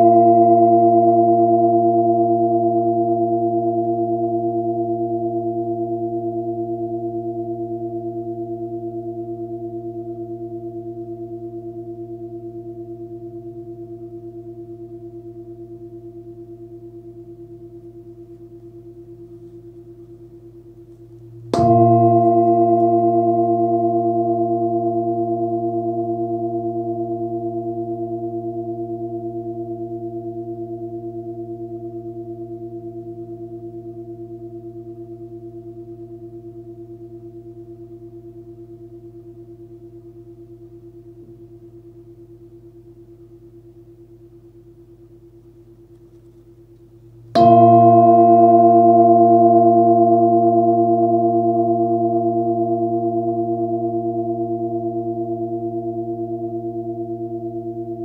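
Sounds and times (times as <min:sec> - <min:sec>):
singing bowl ringing: 0:00.0 - 0:20.7, 0:21.3 - 0:44.2, 0:47.3 - 0:58.0
mallet striking singing bowl: 0:21.5 - 0:23.5.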